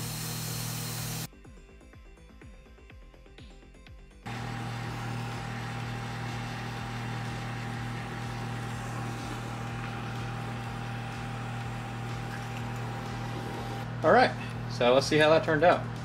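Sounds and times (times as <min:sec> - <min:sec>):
torch flame hissing: 0:00.0 - 0:01.3, 0:04.3 - 0:13.9
ventilation fan humming: 0:00.0 - 0:01.3, 0:04.3 - 0:16.0.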